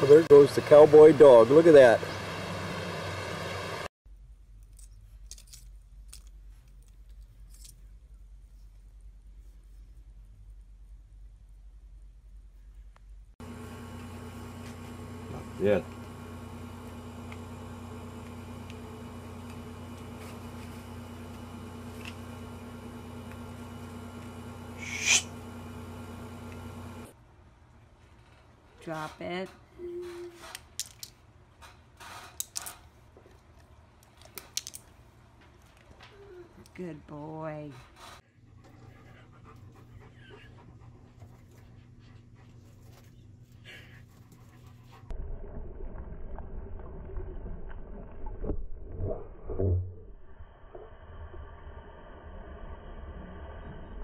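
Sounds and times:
low electrical hum: 3.4s - 48.4s
sharp breathy hiss: 24.8s - 25.3s.

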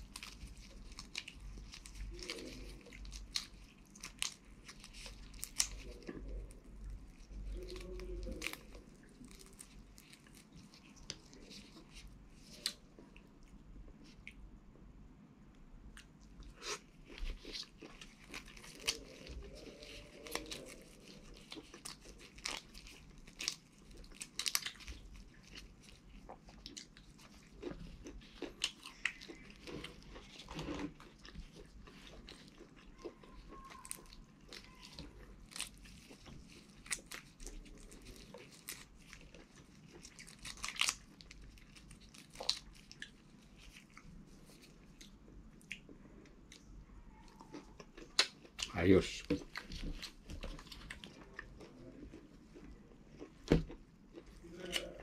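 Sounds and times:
biting and chewing: 0.0s - 14.4s, 15.9s - 55.0s
shrimp shells cracking: 31.9s - 43.1s.

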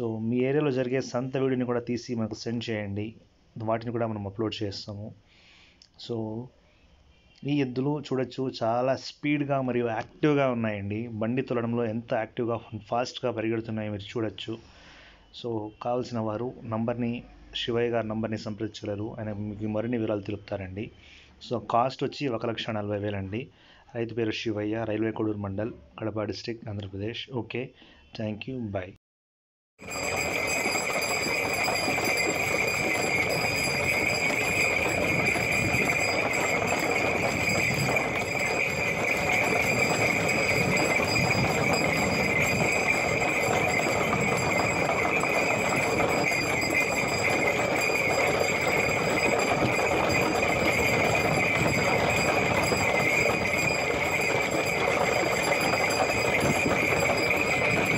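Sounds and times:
cart and hooves clattering: 29.8s - 57.9s
high jingle of bells: 29.8s - 57.9s.

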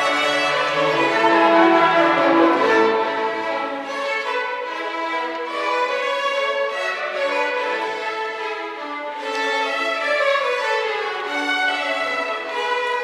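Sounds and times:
orchestra playing classical music: 0.0s - 13.0s
violins: 0.0s - 13.0s.

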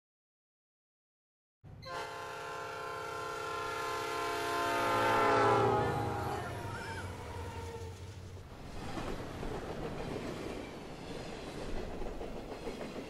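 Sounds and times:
low rumble of moving train: 1.7s - 13.0s
train horn: 1.8s - 8.0s.

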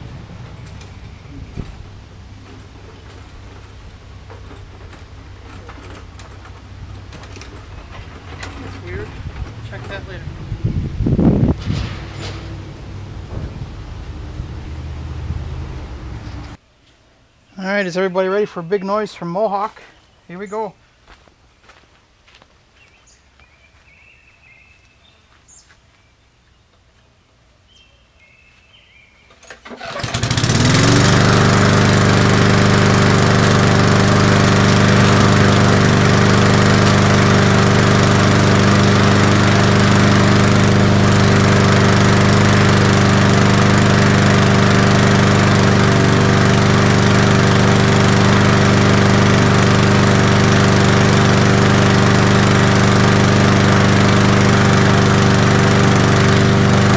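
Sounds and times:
lawn mower engine running: 0.0s - 16.6s, 29.4s - 56.9s.

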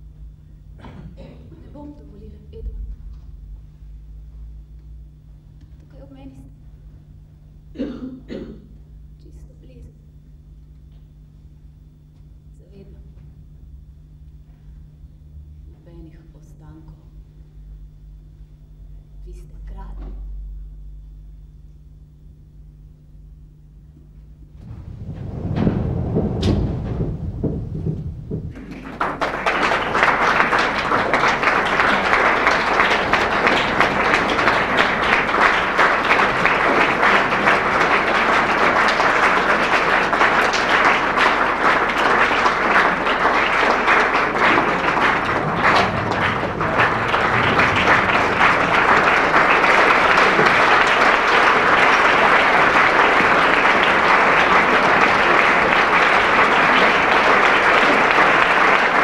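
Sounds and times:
low boom: 24.6s - 37.9s, 43.0s - 51.0s
audience applauding: 24.6s - 59.0s.

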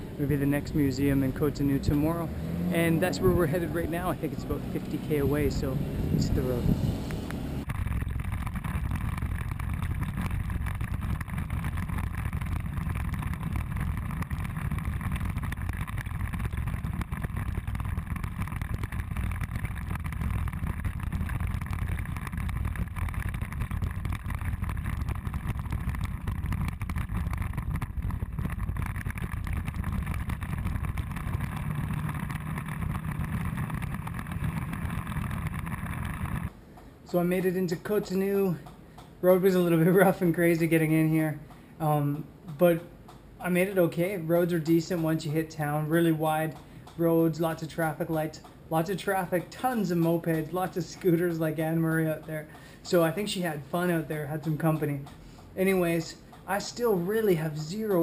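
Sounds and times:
scooter engine rumble: 0.0s - 37.6s
wind: 0.0s - 58.0s.

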